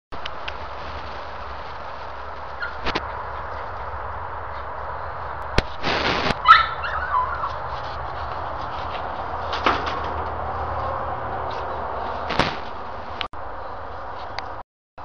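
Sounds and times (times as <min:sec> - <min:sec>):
steady outdoor hiss: 0:00.1 - 0:14.6
small dog yelping: 0:02.6 - 0:02.9, 0:06.4 - 0:07.9.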